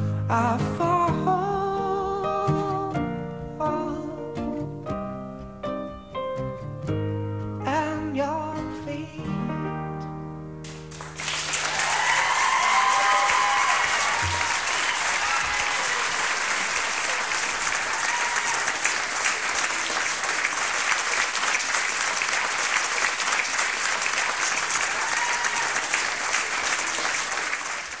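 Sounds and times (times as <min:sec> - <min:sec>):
audience applause: 0:10.7 - 0:28.0.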